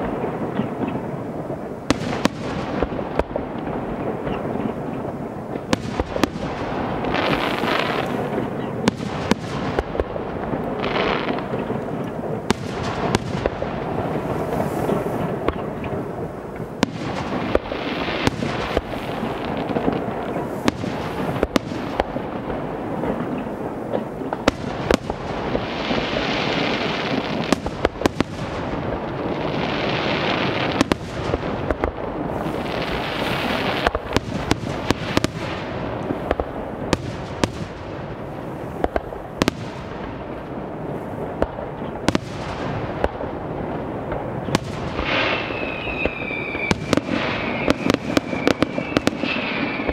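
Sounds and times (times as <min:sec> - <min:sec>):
rumble and crackle: 0:00.0 - 0:49.9
firework hissing: 0:05.1 - 0:11.8, 0:12.4 - 0:39.8, 0:44.5 - 0:49.9
firework shells bursting: 0:44.1 - 0:49.9
firework whistle: 0:44.5 - 0:49.9.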